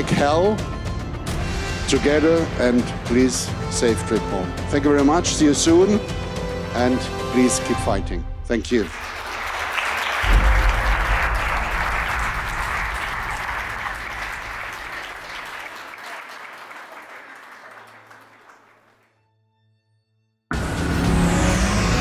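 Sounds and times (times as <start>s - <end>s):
loud music: 0.0s - 8.0s, 10.2s - 15.0s, 20.5s - 22.0s
audience applauding: 8.6s - 19.2s.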